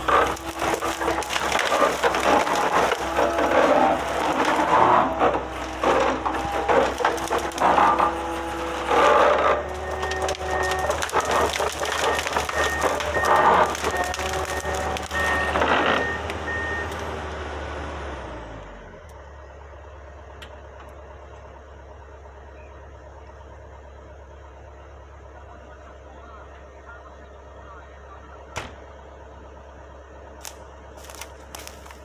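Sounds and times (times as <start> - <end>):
crunching over brush: 0.0 - 16.0, 30.4 - 32.0
diesel engine and hydraulics: 0.0 - 32.0.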